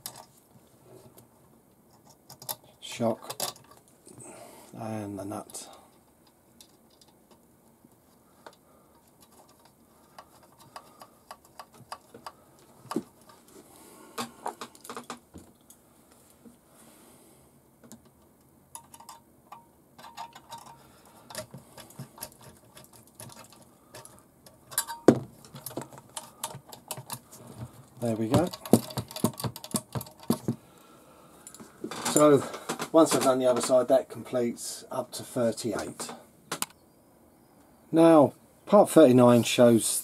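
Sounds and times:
small metal parts clicking: 5.6s - 7.4s, 18.7s - 30.5s.

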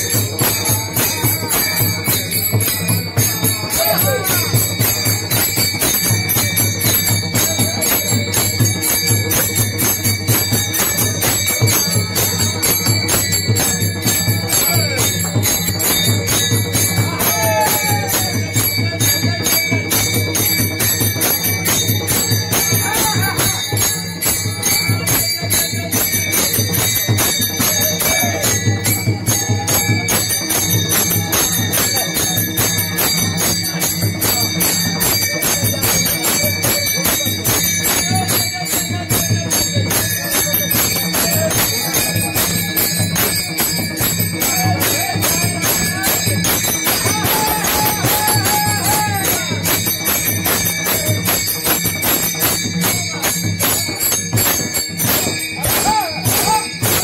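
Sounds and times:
group singing: 0.0s - 5.0s, 16.0s - 19.8s, 37.9s - 49.8s
hand cymbals clashing: 0.0s - 57.0s.

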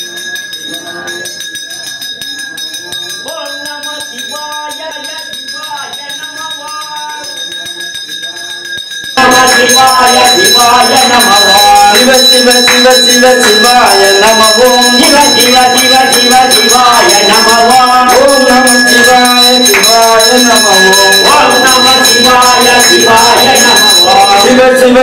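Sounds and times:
bells ringing: 0.0s - 25.0s
devotional singing: 9.2s - 25.0s.

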